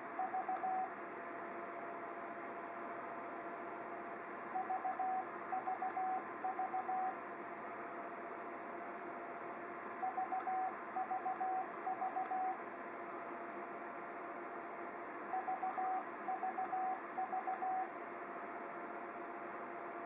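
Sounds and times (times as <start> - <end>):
morse code sidetone beeps: 0.2 - 0.9, 4.6 - 7.1, 10.0 - 12.6, 15.3 - 17.9.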